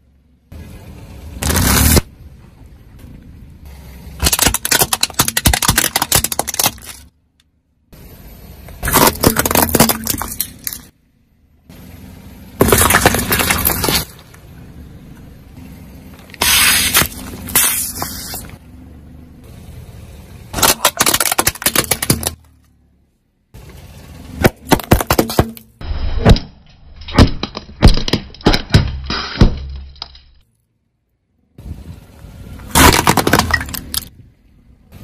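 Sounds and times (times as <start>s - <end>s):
low engine hum: 0.0s - 5.1s, 6.8s - 26.9s, 30.5s - 35.0s
tyres crushing brittle objects: 4.2s - 7.1s, 8.8s - 10.9s, 12.6s - 14.2s, 16.3s - 18.5s, 20.5s - 22.5s, 24.4s - 30.5s, 32.7s - 34.1s.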